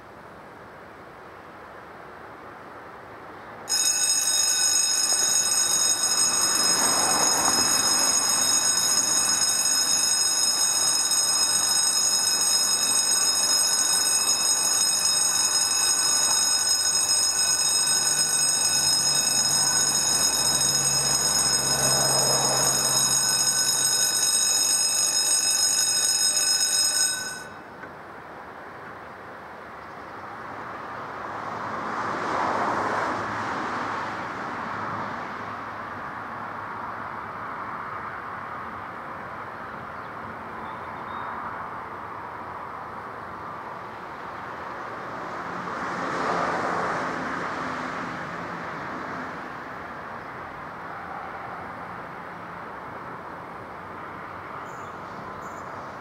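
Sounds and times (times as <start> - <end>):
level crossing electronic ringing: 3.7 - 27.7.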